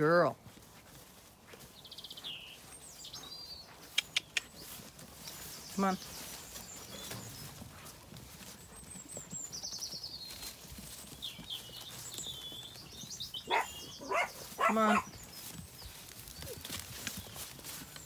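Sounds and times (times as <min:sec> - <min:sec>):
sheep shuffling through grass: 0:00.0 - 0:18.0
small birds singing: 0:00.1 - 0:18.0.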